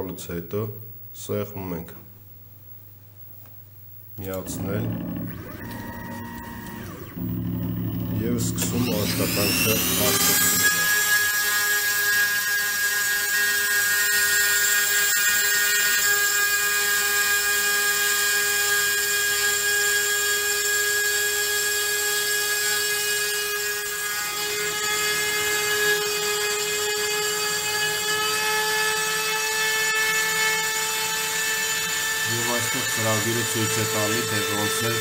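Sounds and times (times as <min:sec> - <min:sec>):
milling spindle whine: 0:04.2 - 0:20.6, 0:30.1 - 0:35.0.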